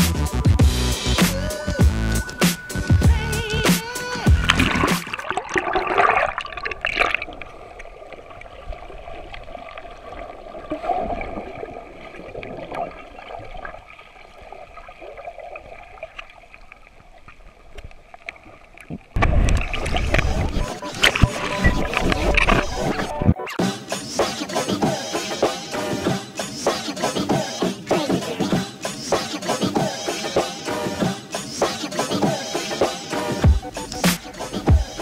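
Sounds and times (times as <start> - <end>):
muffled underwater gurgling: 3.1 - 7.0, 19.2 - 23.4
splashing at sea surface: 3.7 - 7.4.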